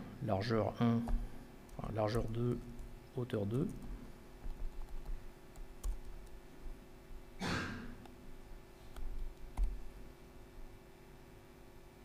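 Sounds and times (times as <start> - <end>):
faint steady hum: 0.0 - 12.0
laptop keyboard clicks: 8.9 - 9.8.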